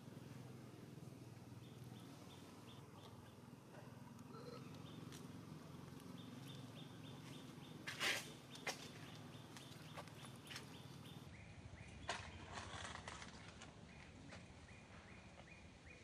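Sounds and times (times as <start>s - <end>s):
rustle of dry leaves: 7.2s - 10.8s, 12.1s - 14.1s.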